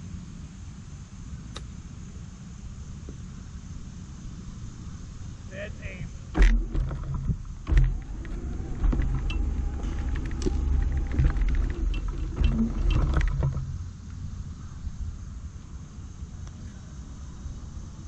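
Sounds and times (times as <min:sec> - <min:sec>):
cart rolling over grass: 0:06.2 - 0:14.5
rattles and clicks: 0:06.3 - 0:14.2.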